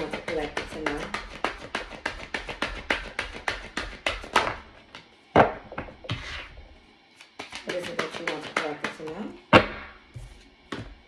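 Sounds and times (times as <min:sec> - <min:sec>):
cards being shuffled by hand: 0:00.0 - 0:05.0, 0:07.2 - 0:09.2.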